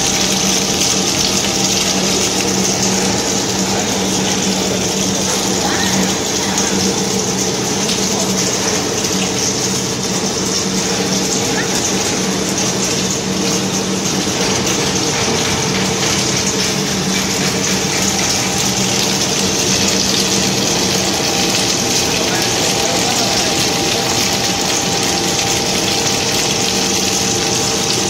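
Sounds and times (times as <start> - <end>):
extruder machine running: 0.0 - 28.0.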